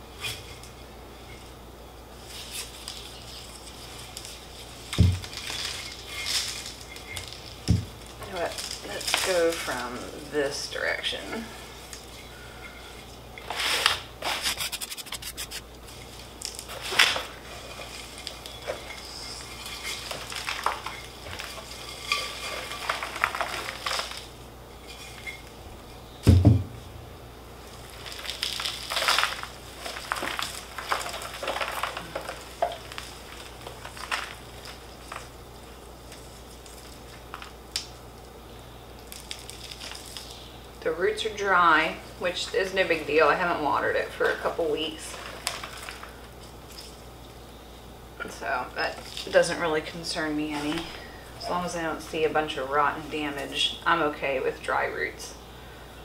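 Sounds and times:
potting mix crackling and rustling: 0:00.0 - 0:56.0
gritty scrapes against clay pot: 0:11.5 - 0:25.6
thump: 0:26.3 - 0:26.7.

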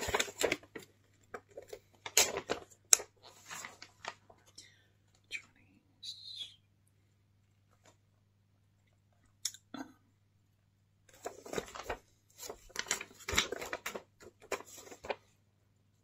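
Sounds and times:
paper rustling and crinkling: 0:00.0 - 0:04.6, 0:11.1 - 0:15.4.

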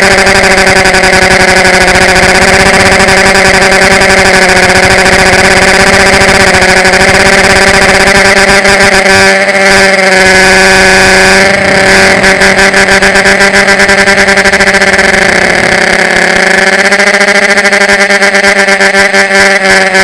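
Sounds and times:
drone motors whining: 0:10.1 - 0:17.6.

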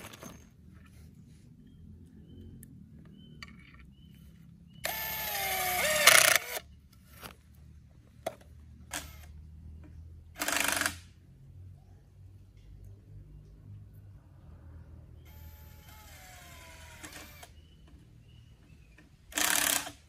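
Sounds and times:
cordless drill whirring: 0:04.8 - 0:06.6, 0:15.3 - 0:17.5.

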